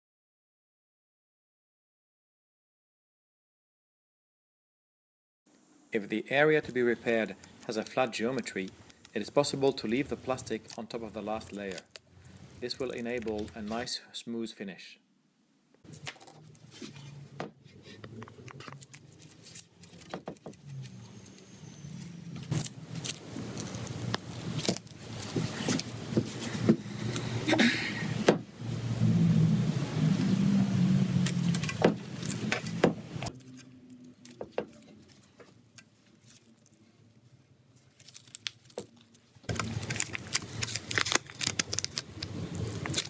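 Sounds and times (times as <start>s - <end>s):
low engine-like hum: 28.6s - 34.2s.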